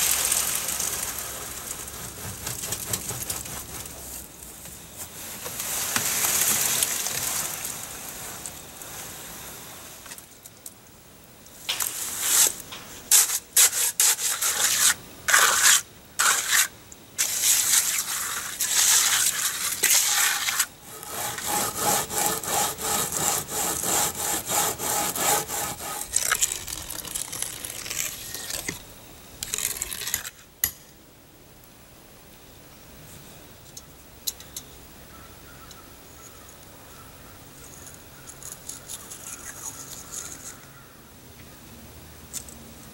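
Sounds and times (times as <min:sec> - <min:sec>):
wet concrete sliding out: 0:00.0 - 0:04.3, 0:05.0 - 0:10.2, 0:11.7 - 0:28.8
trowel scraping wet concrete: 0:11.8 - 0:28.8, 0:29.4 - 0:30.4.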